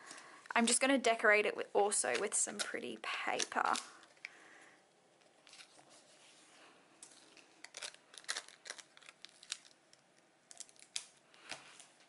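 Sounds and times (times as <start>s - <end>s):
paper crinkling: 5.2s - 12.0s.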